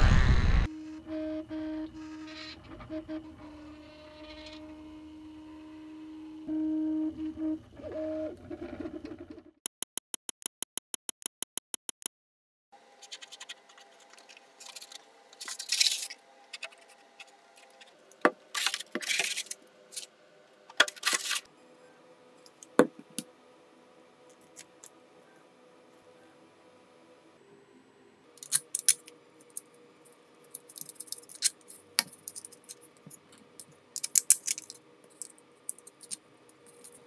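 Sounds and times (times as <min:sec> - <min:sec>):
plastic parts scraping and rustling: 0:13.0 - 0:20.1, 0:20.7 - 0:21.5, 0:28.4 - 0:29.6, 0:30.5 - 0:37.0.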